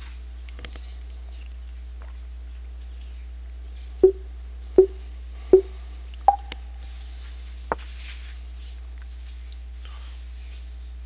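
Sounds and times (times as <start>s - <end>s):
short beeps: 6.3s - 6.6s
single higher beep: 6.3s - 6.6s.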